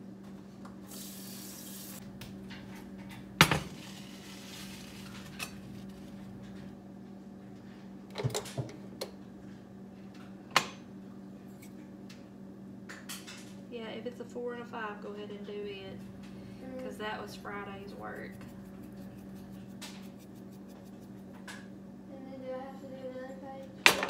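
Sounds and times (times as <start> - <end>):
water running from tap: 0.9 - 2.0.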